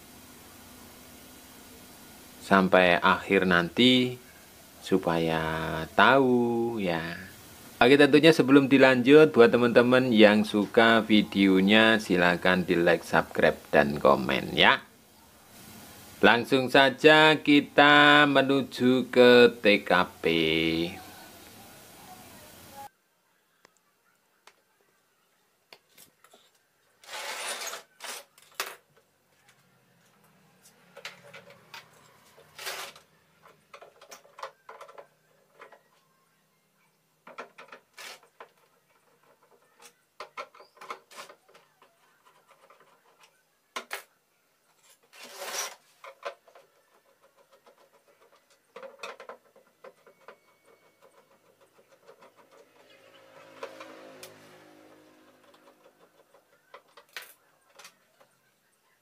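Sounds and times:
plastic cover scraping: 0:27.0 - 0:28.6, 0:31.0 - 0:35.8, 0:44.8 - 0:58.0.

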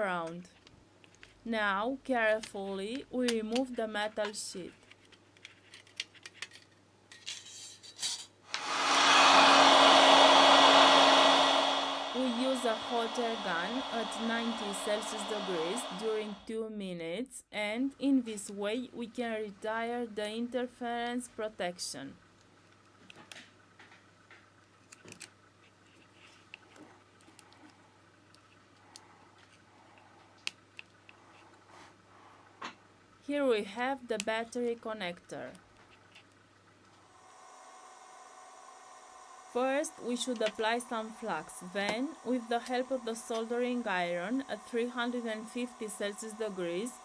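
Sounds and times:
faint low hum: 0:08.5 - 0:16.5, 0:39.6 - 0:47.0.

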